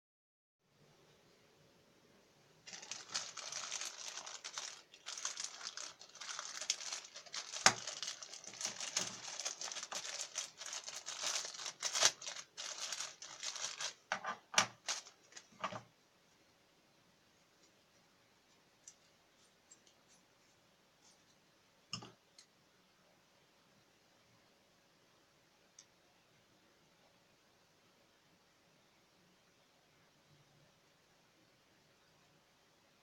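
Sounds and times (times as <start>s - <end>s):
plastic bag crinkling: 2.6s - 15.9s.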